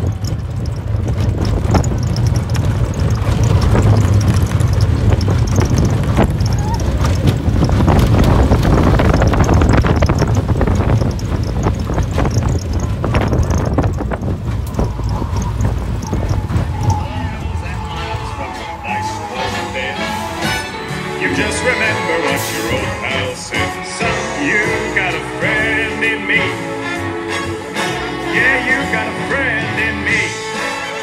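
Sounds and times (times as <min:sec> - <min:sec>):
wind on microphone: 0:00.0 - 0:19.4
roller coaster wheels rumbling: 0:00.0 - 0:31.0
track clacks: 0:00.0 - 0:31.0.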